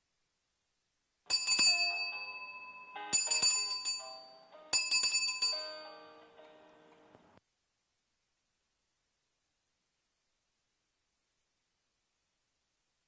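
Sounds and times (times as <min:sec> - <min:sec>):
altar bells ringing: 0:01.3 - 0:07.0.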